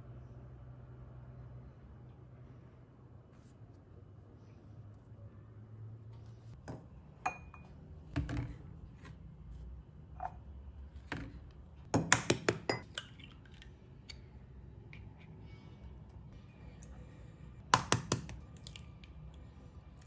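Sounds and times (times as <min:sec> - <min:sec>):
glass jar and bottle clinking: 0:07.2 - 0:07.7.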